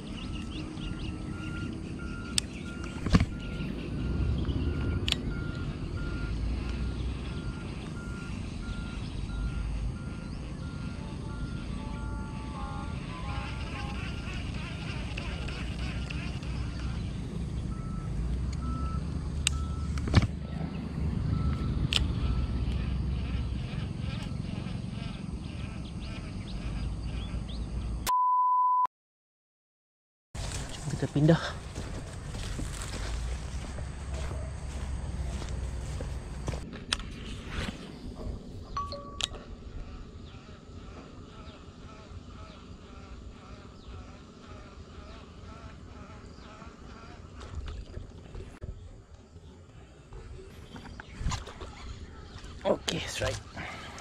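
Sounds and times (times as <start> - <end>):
bird chirps: 0.0 - 9.6
electronic beep tone: 17.7 - 20.6, 38.8 - 39.4.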